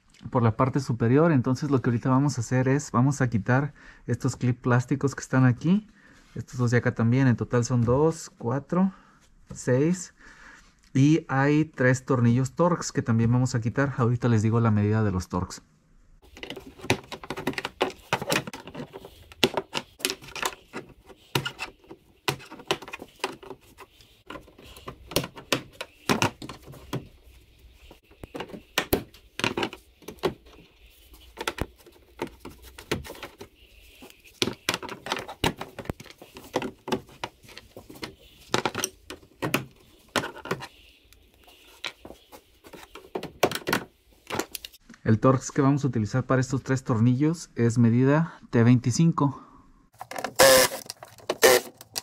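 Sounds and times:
plastic clips being pried out: 0:50.0 - 0:52.0.

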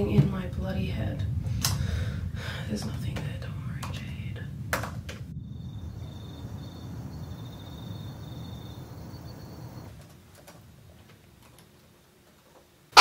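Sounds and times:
low dull rumble: 0:00.0 - 0:10.0.

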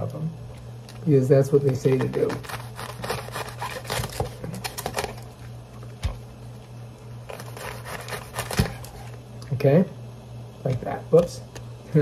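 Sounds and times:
knife chopping artichokes: 0:01.9 - 0:04.9, 0:07.6 - 0:08.9.

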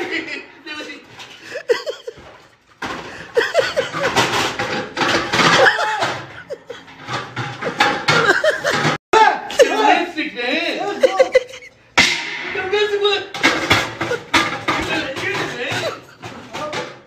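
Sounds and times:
cooking pots and lids clattering: 0:00.0 - 0:09.8, 0:11.1 - 0:17.0
laughter: 0:01.4 - 0:02.3, 0:03.1 - 0:04.4, 0:05.4 - 0:06.9, 0:07.6 - 0:09.9, 0:10.7 - 0:11.8, 0:15.4 - 0:16.5
voices: 0:14.6 - 0:17.0.

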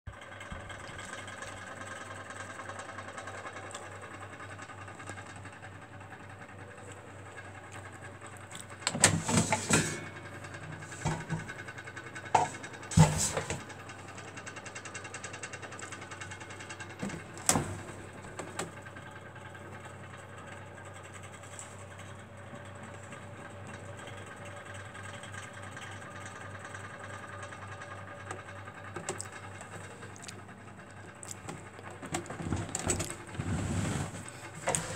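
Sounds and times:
steady hum: 0:08.2 - 0:14.6.

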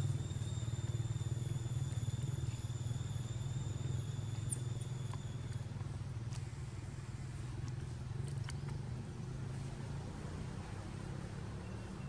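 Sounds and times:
faint high whine: 0:00.0 - 0:07.6
small engine idling: 0:00.0 - 0:10.2.

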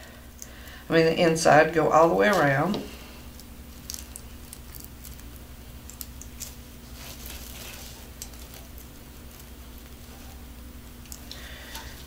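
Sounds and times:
plastic mesh crinkling: 0:02.2 - 0:12.0.

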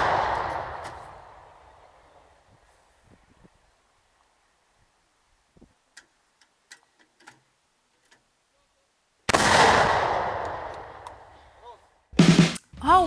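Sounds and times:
howitzer shot blast: 0:00.0 - 0:00.9, 0:09.3 - 0:11.0
faint clicks: 0:05.9 - 0:08.3.

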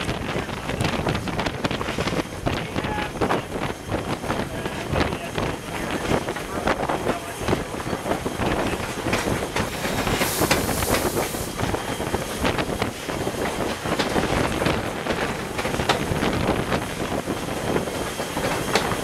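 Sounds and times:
train wheels clattering on rails: 0:00.0 - 0:19.0
steam hiss: 0:09.3 - 0:13.4.

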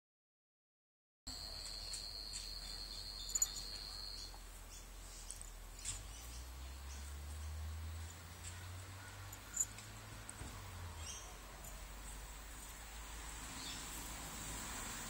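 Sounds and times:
cricket trilling: 0:01.3 - 0:04.3
faint outdoor background noise: 0:01.3 - 0:15.0.

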